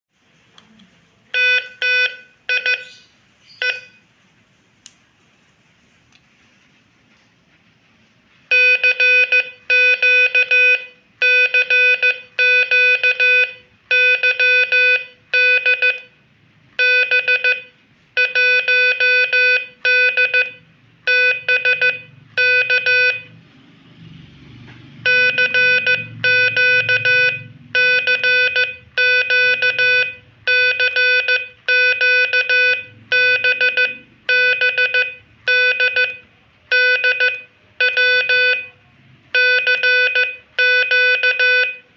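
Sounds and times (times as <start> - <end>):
morse code tone: 1.3 - 3.0, 3.6 - 4.1, 8.5 - 16.2, 16.8 - 23.4, 25.0 - 41.9.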